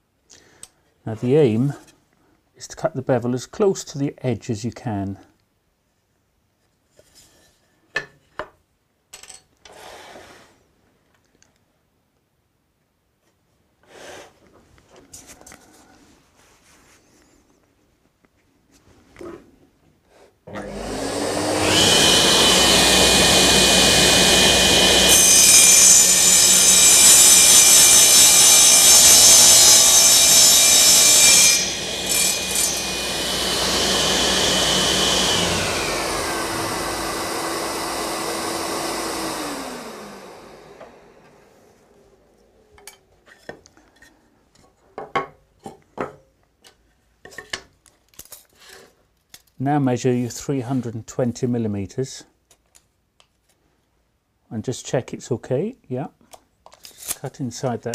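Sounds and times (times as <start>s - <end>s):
power saw cutting wood: 20.5s - 41.9s.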